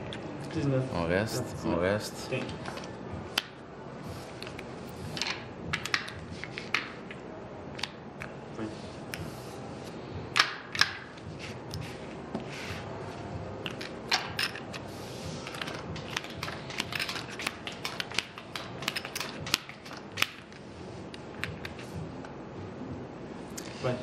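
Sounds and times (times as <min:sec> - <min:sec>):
chips and cards clicking: 0:15.4 - 0:20.6.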